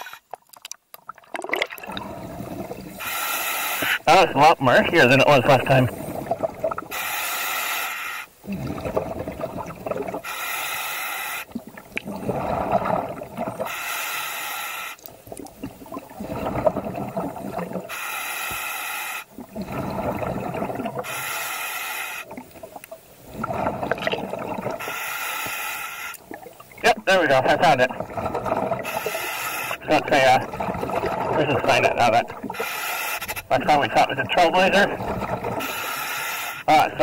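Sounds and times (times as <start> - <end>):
diver breathing through regulator: 2.0 - 4.1, 5.9 - 9.0, 10.2 - 15.0, 17.8 - 20.3, 21.0 - 22.4, 24.7 - 26.2, 28.6 - 29.8, 32.5 - 33.5, 35.4 - 36.7
bubbling exhale: 5.9 - 22.5, 23.3 - 26.5, 27.8 - 29.8.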